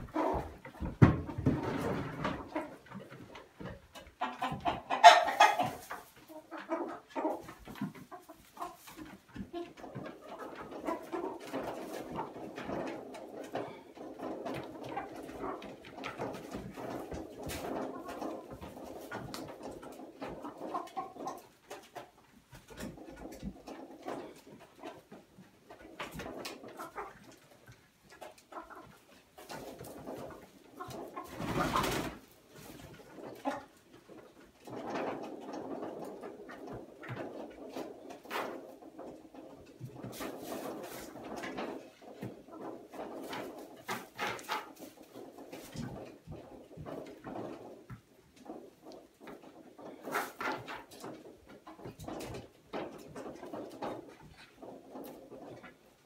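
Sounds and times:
chickens clucking: 0:00.0 - 0:56.0
hen flapping wings: 0:31.2 - 0:32.2.

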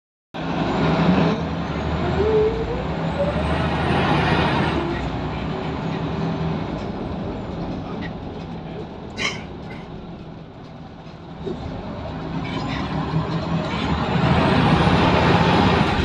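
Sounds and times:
rising engine whine: 0:00.4 - 0:08.0, 0:11.4 - 0:16.0
bus diesel engine running: 0:00.4 - 0:16.0.

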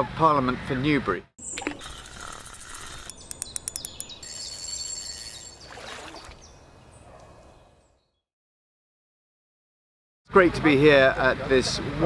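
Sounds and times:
birds chirping: 0:00.5 - 0:08.2.

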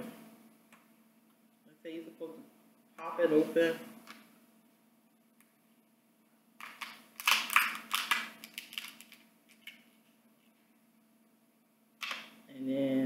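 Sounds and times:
crab shell cracking: 0:06.6 - 0:09.9.

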